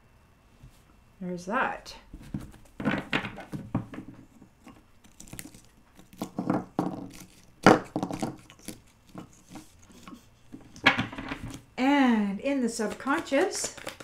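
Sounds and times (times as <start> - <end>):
cards rustling and tapping: 2.2 - 11.6, 12.7 - 14.0.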